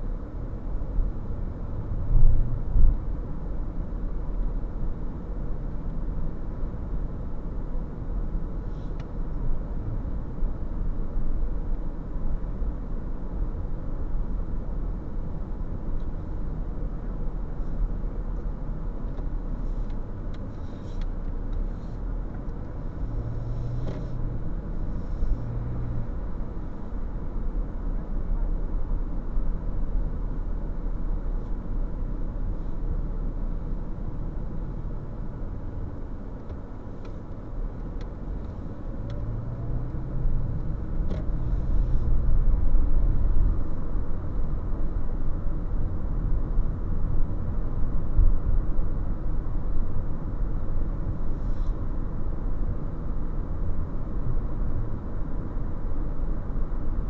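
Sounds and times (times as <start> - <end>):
car driving rumble from inside: 0.0 - 57.0
light ticks: 36.4 - 37.2.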